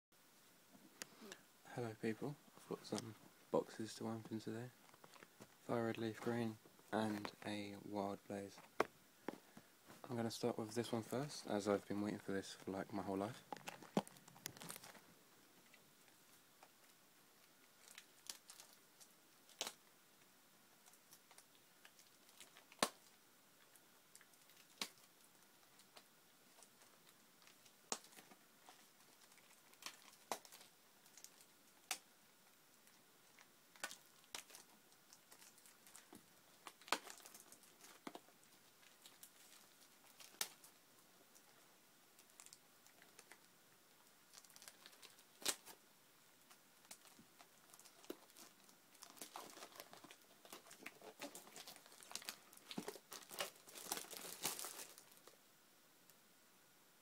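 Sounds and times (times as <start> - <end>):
wrapping crinkling: 8.4 - 15.1, 17.7 - 19.9, 20.8 - 41.6, 42.2 - 45.8, 46.4 - 55.4.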